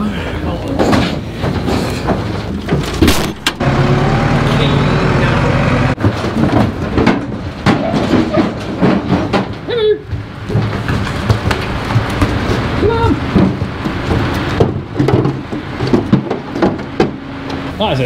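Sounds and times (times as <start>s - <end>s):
calf moving in metal trailer: 0.0s - 18.0s
knocks and clatter: 0.8s - 4.3s, 5.4s - 17.7s
tractor engine running: 2.2s - 7.7s, 10.2s - 18.0s.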